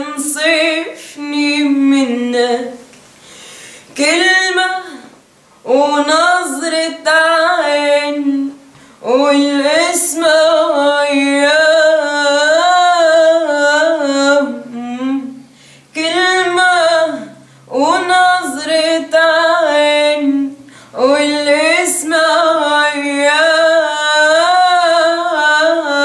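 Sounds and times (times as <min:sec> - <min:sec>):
girl singing unaccompanied: 0:00.0 - 0:02.9, 0:04.0 - 0:26.0
singer breathing: 0:03.2 - 0:04.0, 0:08.7 - 0:09.0, 0:15.4 - 0:15.9, 0:20.6 - 0:21.0.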